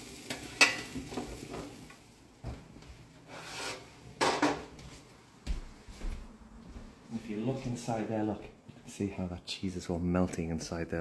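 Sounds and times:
scraping rub: 3.3 - 3.9.

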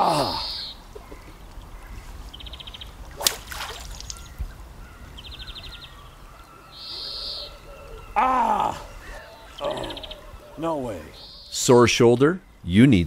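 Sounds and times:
faint outdoor background: 0.0 - 13.0
fly line snap: 3.1 - 4.4.

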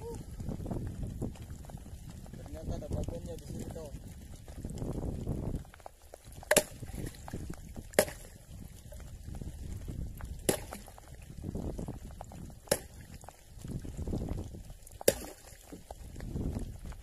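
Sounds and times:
water splashing against boat: 6.4 - 9.6, 10.2 - 11.2, 12.2 - 17.0.

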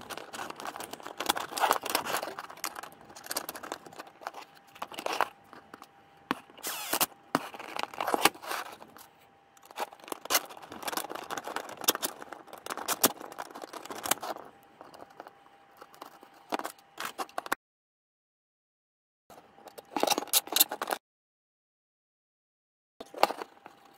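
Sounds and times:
plastic parts clicking and tapping: 0.0 - 6.6, 9.6 - 17.6.

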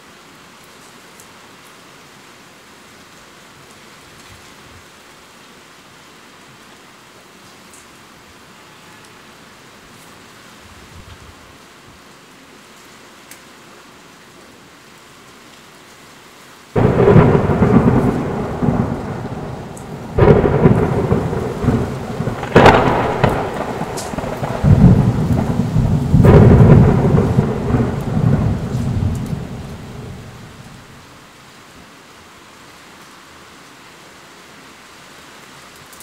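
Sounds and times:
heavy rain: 0.0 - 36.0
thunder cracks and rumbles: 16.8 - 31.0.

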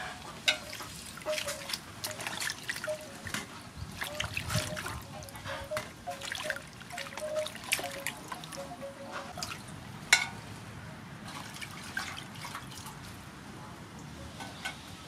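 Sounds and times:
water splashing in basin: 0.5 - 8.7, 11.2 - 13.2.

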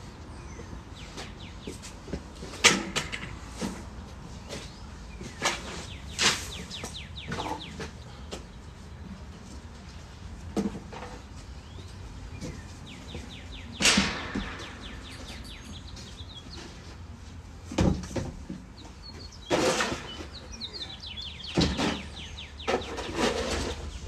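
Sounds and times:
bird twittering: 5.3 - 7.8, 20.1 - 23.2
rough scraping on dirt floor: 19.4 - 20.4, 21.5 - 24.0.

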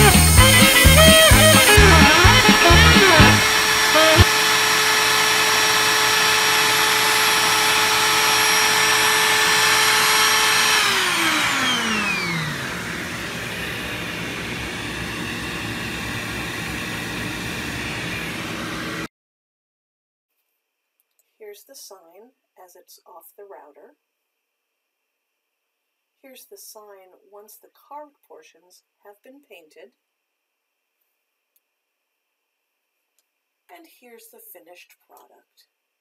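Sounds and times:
router spindle whining: 0.0 - 19.1
spindle spinning down: 0.0 - 19.1
quiet steady hiss: 20.3 - 36.0.

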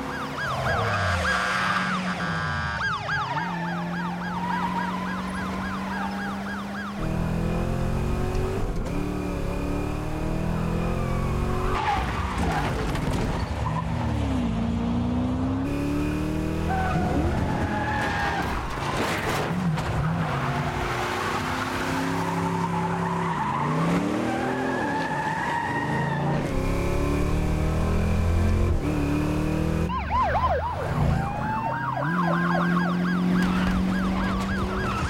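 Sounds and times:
car engine revving: 0.6 - 11.8, 14.5 - 17.8, 25.8 - 29.9.

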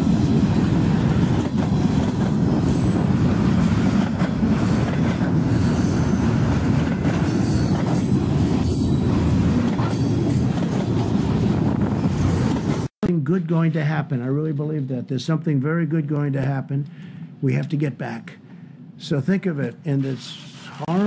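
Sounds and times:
freight train rumbling past: 0.0 - 12.9
high wheel squeals: 5.4 - 6.3.

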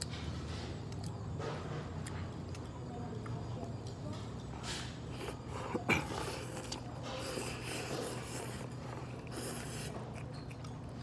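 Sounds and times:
person slurping noodles: 5.2 - 10.0.

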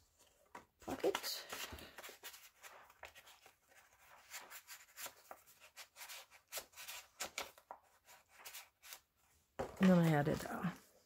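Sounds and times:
paper rustling and scraping: 0.2 - 11.0.

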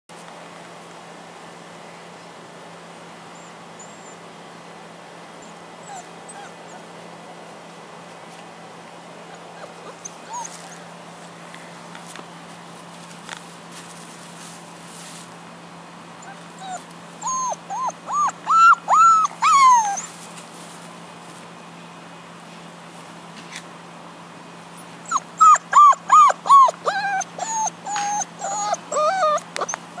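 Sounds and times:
puppy yipping and whining: 3.3 - 4.2, 5.4 - 7.0, 9.2 - 10.9, 16.2 - 20.2, 25.0 - 30.0.

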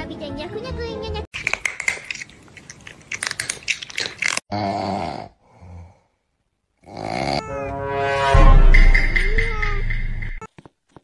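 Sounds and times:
crunchy chewing: 1.3 - 4.5.

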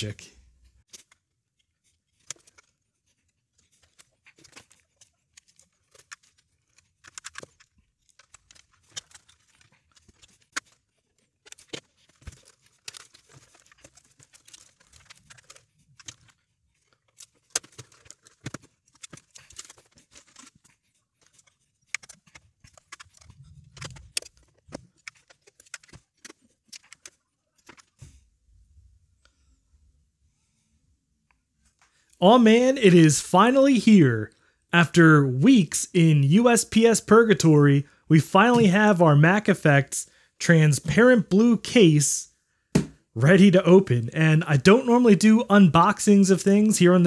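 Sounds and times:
computer parts clicking and rattling: 1.8 - 28.0.

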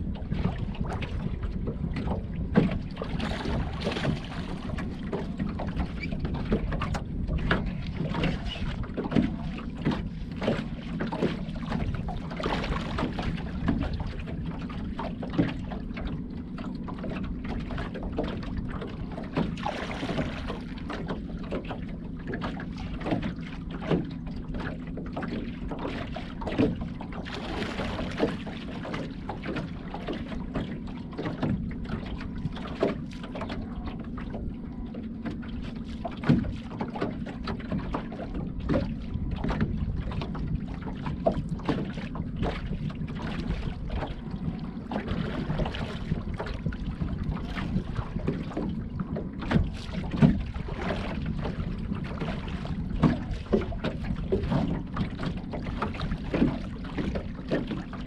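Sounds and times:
wind on microphone: 0.0 - 15.9, 38.1 - 57.9
boat knocks: 0.0 - 58.0
low hum: 0.0 - 58.0
water splashing: 0.0 - 58.0.

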